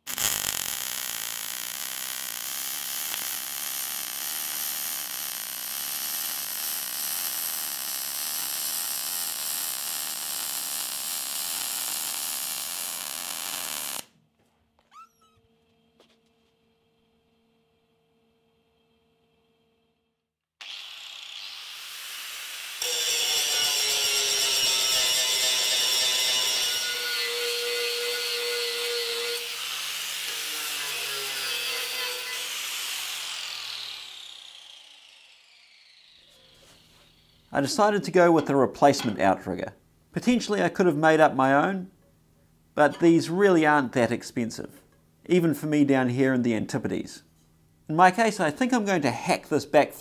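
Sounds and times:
welding arc buzzing: 0.0s - 14.2s, 20.6s - 37.6s
angle grinder cutting steel: 20.6s - 37.6s.

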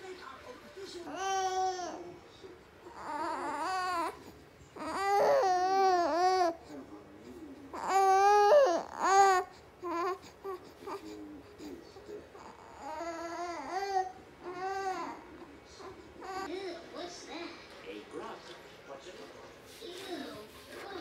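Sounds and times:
baby wailing: 1.1s - 2.1s, 2.9s - 6.6s, 7.7s - 11.1s, 12.4s - 16.5s.

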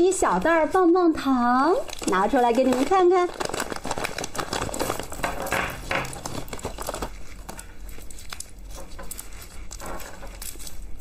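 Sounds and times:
plastic wrappers rustling: 0.0s - 11.0s
plastic bag crinkling: 0.1s - 11.0s.

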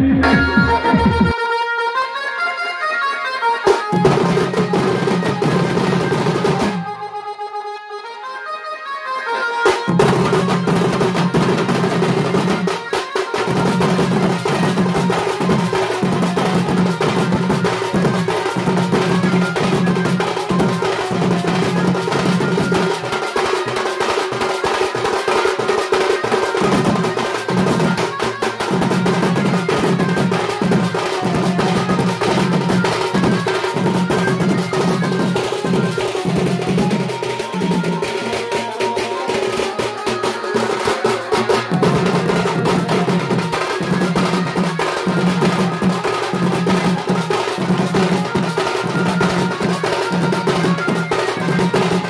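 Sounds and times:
low repeating tone: 0.0s - 1.4s.

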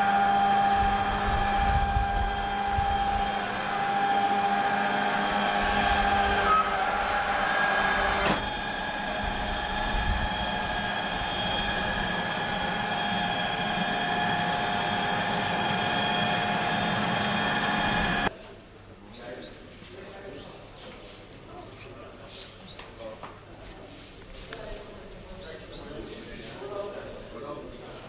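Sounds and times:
machinery whining: 0.0s - 18.3s
low rumble: 0.6s - 4.5s, 5.2s - 18.3s.

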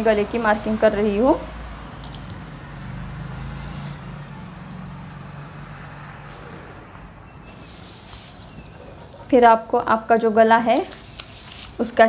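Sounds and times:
pencil scratching along ruler: 6.2s - 9.4s.

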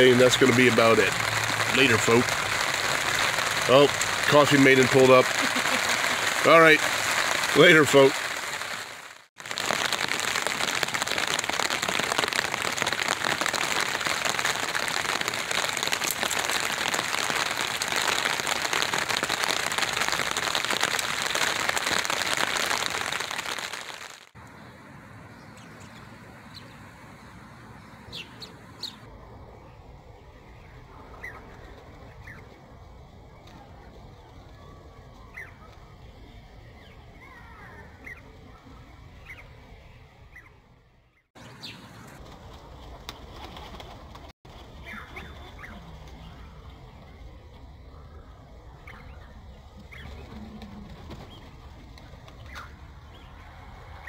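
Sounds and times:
rain drumming on a tarp: 0.0s - 24.4s.

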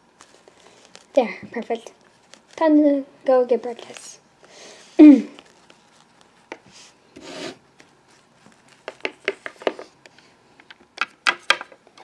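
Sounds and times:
plastic toy rubbing scrape: 7.2s - 7.6s.

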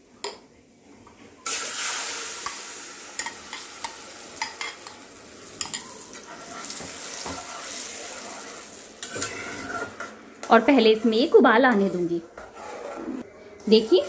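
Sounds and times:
food sizzling in hot oil: 1.4s - 10.0s
metal spatula scraping a pan: 9.0s - 10.8s, 11.8s - 14.0s.

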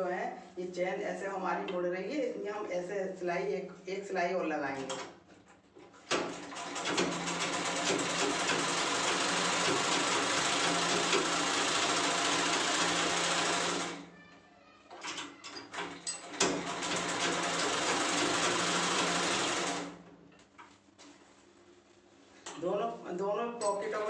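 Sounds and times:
sewing machine stitching: 6.1s - 14.0s, 15.1s - 20.0s.

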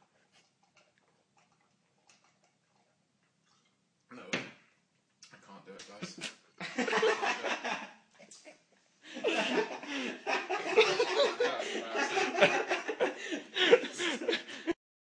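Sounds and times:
people talking: 4.1s - 4.5s, 5.2s - 8.5s, 9.2s - 13.0s
people laughing: 6.0s - 7.9s, 9.1s - 14.8s.

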